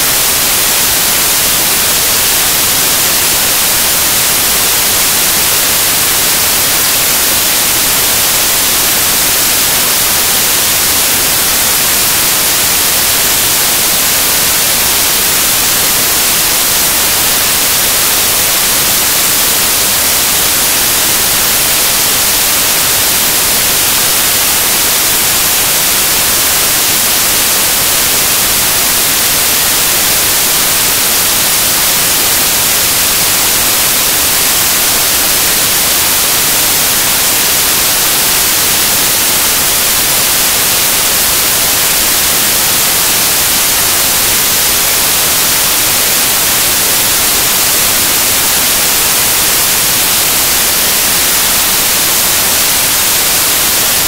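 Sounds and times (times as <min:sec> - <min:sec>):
static hiss: 0:00.0 - 0:54.0.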